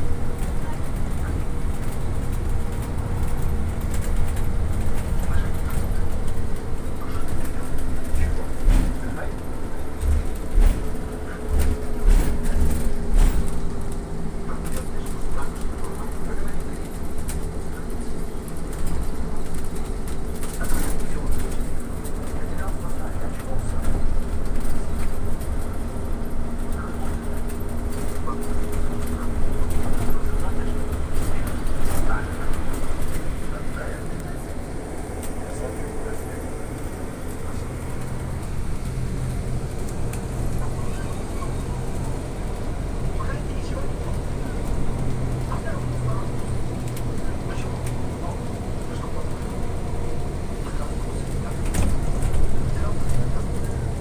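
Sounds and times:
low rumble of trolleybus: 0.0 - 54.0.

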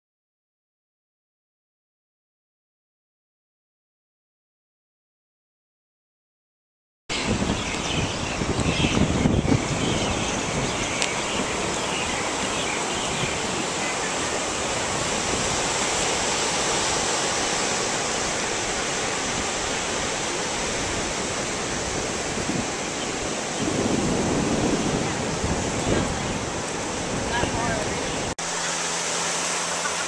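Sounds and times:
surf breaking on beach: 7.2 - 30.0.

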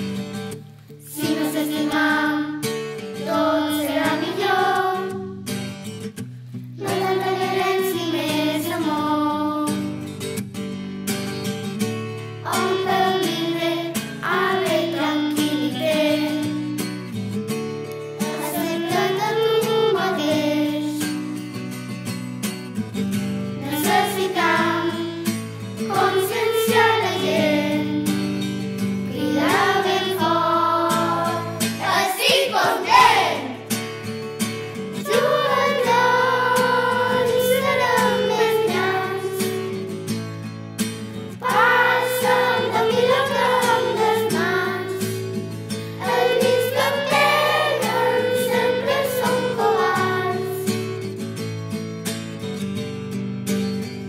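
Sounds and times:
instrumental backing music: 0.0 - 54.0
children singing together: 1.1 - 5.4, 6.8 - 9.8, 12.4 - 16.6, 18.2 - 21.2, 23.6 - 28.3, 29.1 - 33.8, 35.0 - 39.9, 41.4 - 51.1.

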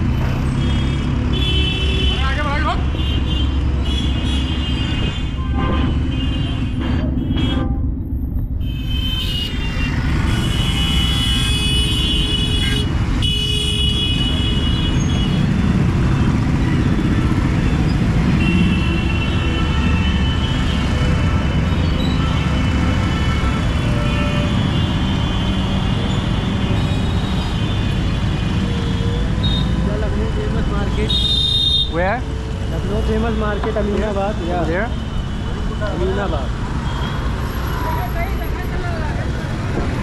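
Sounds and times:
rumble of traffic engines: 0.0 - 40.0
vehicle horns honking: 0.6 - 7.8, 8.6 - 15.5, 18.3 - 29.8, 30.8 - 32.0.

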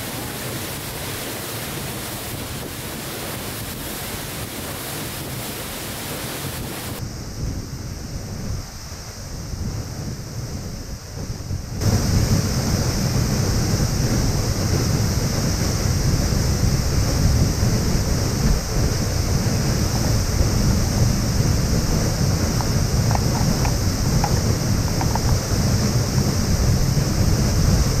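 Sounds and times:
waterfall rushing: 0.0 - 7.0, 19.2 - 28.0.

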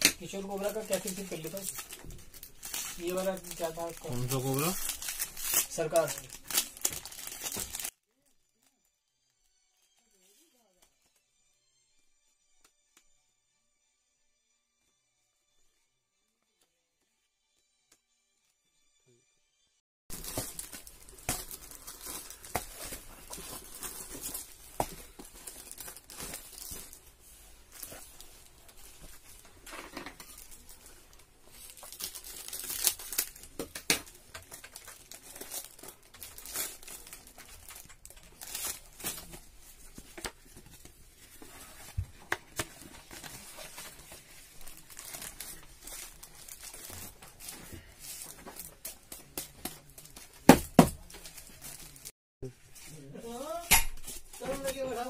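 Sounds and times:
plastic wrap crinkling and tearing: 0.0 - 11.1, 20.1 - 52.1
envelopes rustling: 20.1 - 33.5.

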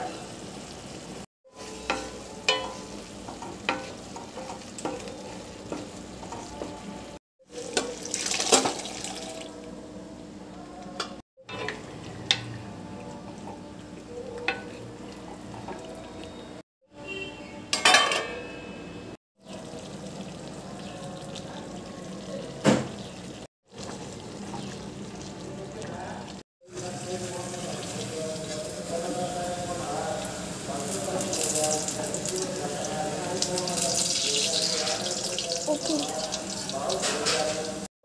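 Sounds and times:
spices sizzling in a pan: 0.0 - 9.2, 26.3 - 37.9.

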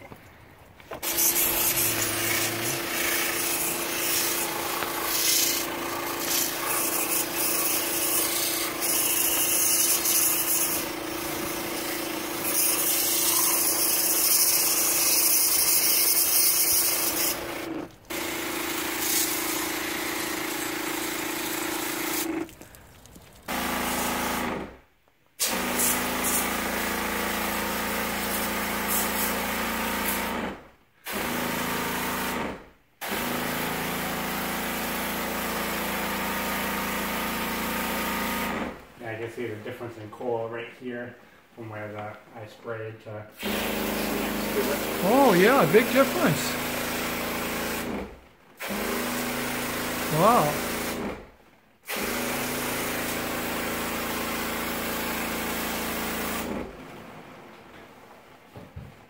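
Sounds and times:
water spray hissing: 1.0 - 10.8, 43.9 - 46.6, 50.0 - 50.9
electric sprayer humming: 1.0 - 13.6, 43.5 - 47.8, 49.4 - 51.0.

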